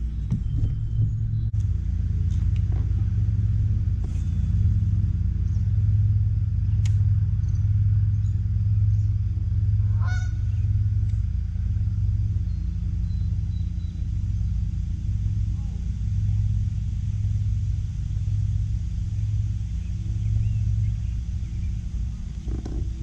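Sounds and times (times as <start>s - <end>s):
boat low rumble: 0.0s - 23.0s
goose honking: 9.8s - 10.6s.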